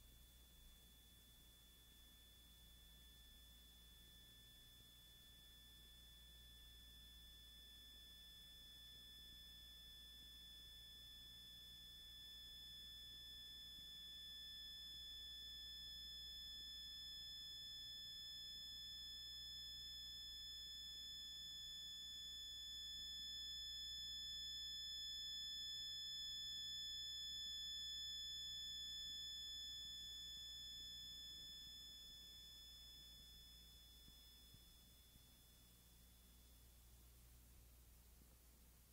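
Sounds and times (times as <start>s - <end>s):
tape hiss: 31.0s - 38.9s.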